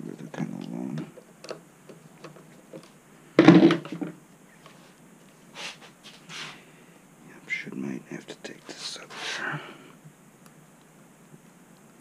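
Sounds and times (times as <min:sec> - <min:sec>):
small clicks and knocks: 0:00.6 - 0:04.2
short hisses: 0:05.6 - 0:06.6, 0:09.1 - 0:09.8.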